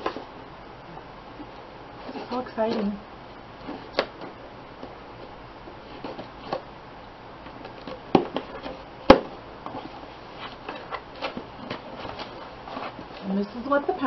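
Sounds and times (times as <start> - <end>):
cardboard box rustling: 2.0 - 3.0, 5.8 - 6.7, 9.7 - 13.6.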